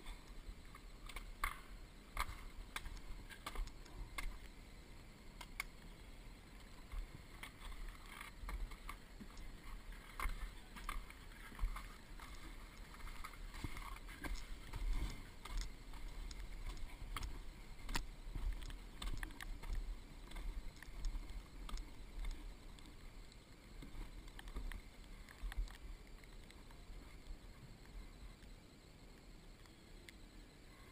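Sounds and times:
footsteps crunching over snow: 0:06.9 - 0:23.0.

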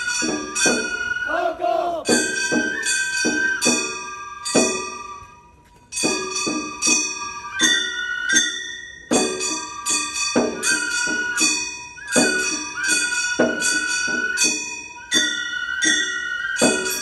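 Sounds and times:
small bronze gongs clanging: 0:00.0 - 0:01.2, 0:02.0 - 0:17.0
bamboo flute long notes: 0:00.0 - 0:05.3, 0:10.6 - 0:17.0.

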